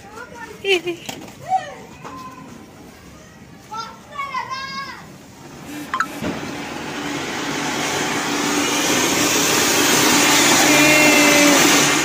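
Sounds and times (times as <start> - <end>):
fountain firework hissing: 5.6 - 12.0.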